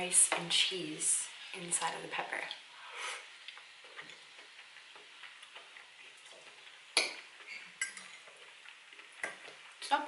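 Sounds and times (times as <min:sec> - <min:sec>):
quiet chewing: 0:02.5 - 0:09.9
metal fork clinking on plate: 0:07.5 - 0:08.2.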